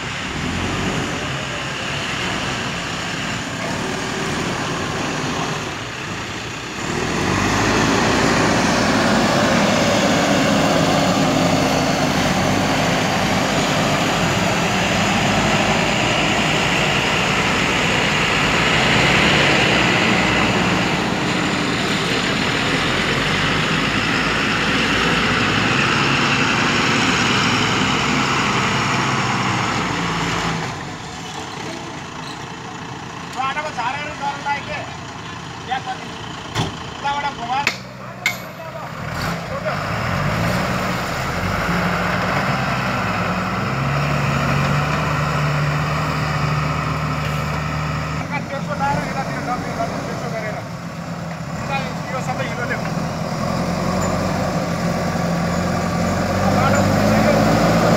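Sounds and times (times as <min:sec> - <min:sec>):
diesel engine running: 0:00.0 - 0:57.9.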